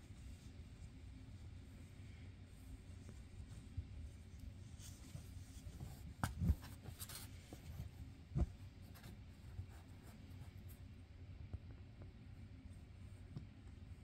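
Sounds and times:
claws scratching on blanket: 0.0s - 11.0s.

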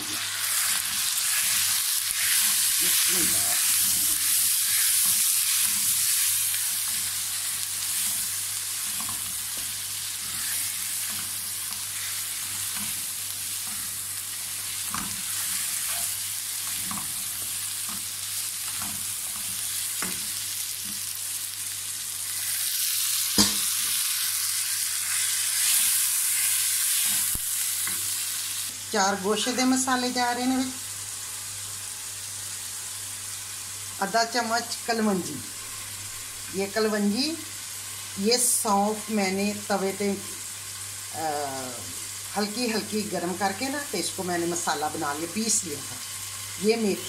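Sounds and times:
meat sizzling in oil: 0.0s - 47.0s
sharp knock on pan: 23.4s - 23.7s.

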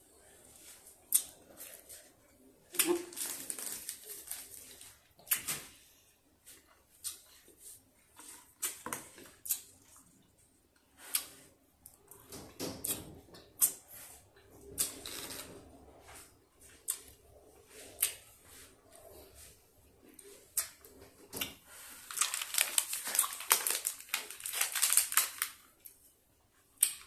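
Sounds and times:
plastic candy packet crinkling: 2.8s - 5.0s, 22.0s - 26.0s.

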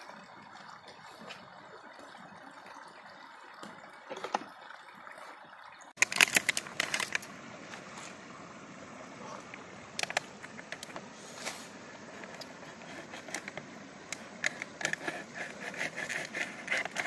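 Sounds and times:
skewers rustling and clicking: 6.0s - 7.9s, 9.4s - 17.0s.

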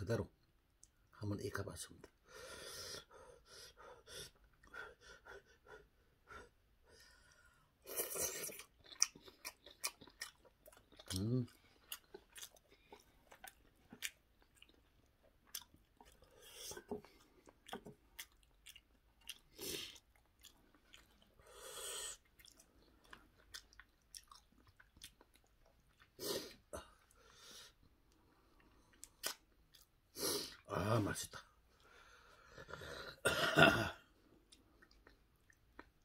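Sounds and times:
soft chewing: 7.4s - 33.2s, 34.1s - 36.0s.

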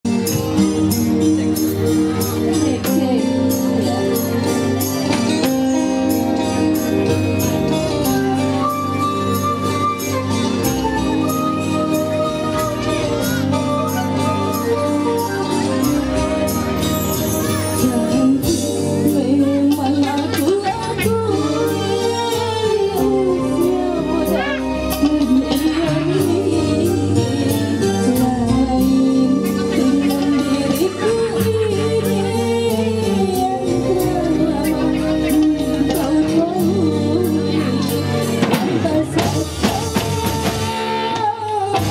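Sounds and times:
jingling percussion: 0.1s - 19.0s
electric guitar: 0.1s - 41.9s
electric keyboard chords: 0.1s - 41.9s
woman singing through pa: 2.5s - 4.0s, 17.6s - 41.9s.

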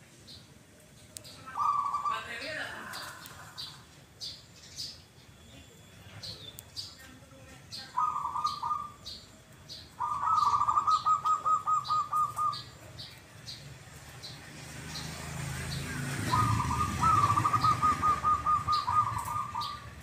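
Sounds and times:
small bird chirping: 0.2s - 20.0s
doves cooing: 1.5s - 3.9s, 7.8s - 9.1s, 10.0s - 13.2s, 15.4s - 20.0s.

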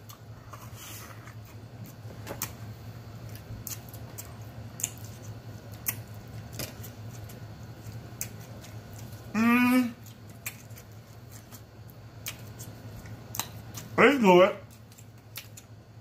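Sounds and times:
low steady hum: 0.0s - 16.0s
chewing and lip-smacking: 3.2s - 9.3s, 10.0s - 14.0s, 14.7s - 15.8s.

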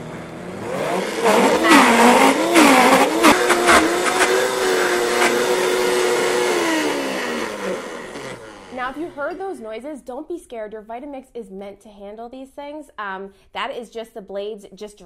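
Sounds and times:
blender running at high speed: 0.0s - 9.4s.

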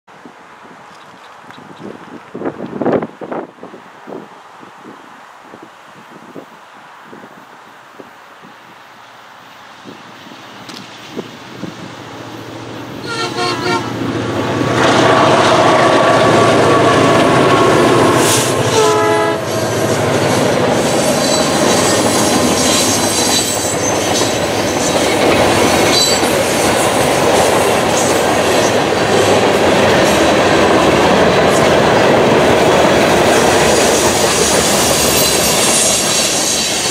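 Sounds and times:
freight cars rumbling on rails: 9.6s - 36.9s
train horn blowing: 13.0s - 14.0s, 14.9s - 20.4s.

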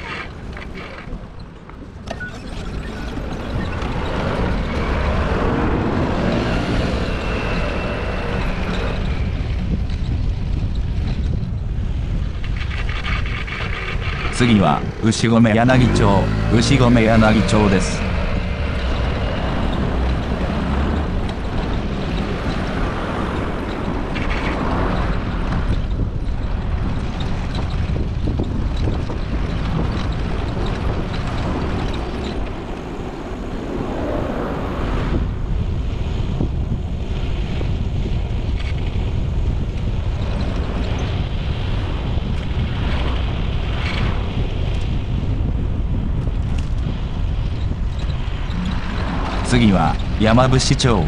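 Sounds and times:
road and traffic rumble: 0.0s - 51.0s
wind buffeting microphone: 0.0s - 51.0s.

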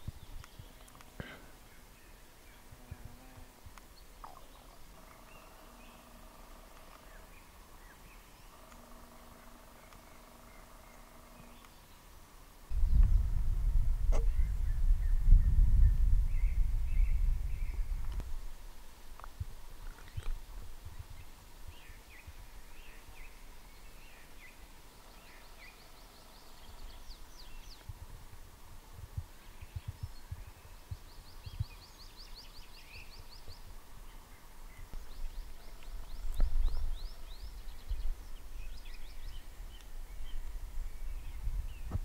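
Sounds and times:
songbirds trilling: 0.0s - 13.0s, 19.2s - 28.0s, 29.2s - 42.0s
low rumble with thumps: 12.7s - 18.4s.

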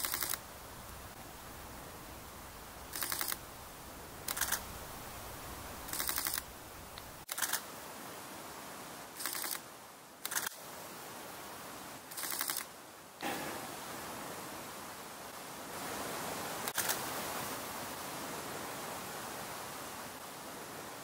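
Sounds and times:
camera shutter burst clicks: 0.0s - 0.4s, 2.9s - 3.4s, 4.2s - 4.7s, 5.9s - 6.4s, 7.2s - 7.6s, 9.2s - 9.6s, 10.2s - 10.6s, 12.1s - 12.7s, 16.7s - 17.0s.

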